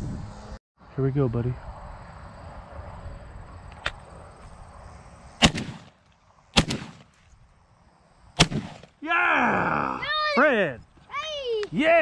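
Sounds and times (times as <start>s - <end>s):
shotgun shots: 5.4s - 6.0s, 6.6s - 7.2s, 8.4s - 9.0s.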